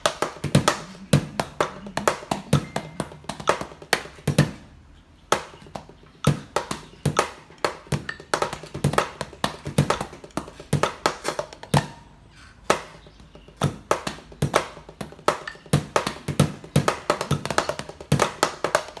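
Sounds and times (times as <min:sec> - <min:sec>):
drumsticks tapping on practice pad: 0:00.0 - 0:04.6, 0:05.3 - 0:19.0.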